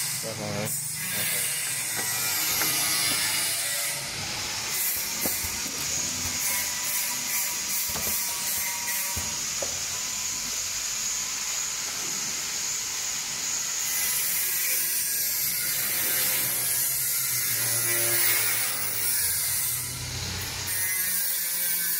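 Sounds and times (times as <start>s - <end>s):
tape-wrapping machine whirring: 0.8s - 10.8s.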